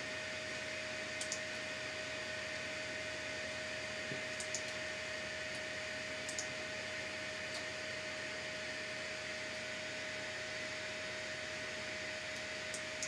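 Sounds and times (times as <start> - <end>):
computer mouse clicking: 1.2 - 1.5, 4.3 - 4.8, 6.2 - 6.5, 12.3 - 13.0.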